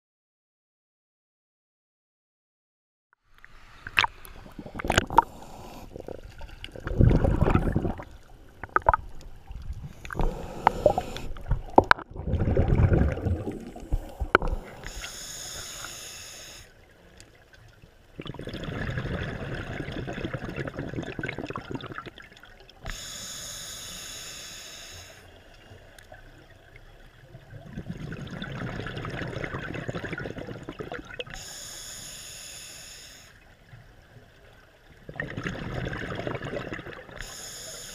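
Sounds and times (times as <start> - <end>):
water splashing: 3.4 - 15.1
scuba regulator inhalations: 3.5 - 8.0, 9.8 - 11.6, 13.0 - 16.8, 22.8 - 25.4, 31.3 - 33.4, 37.1 - 37.9
bubbling exhalations: 3.8 - 15.0, 18.2 - 22.3, 27.5 - 31.3, 35.0 - 37.2.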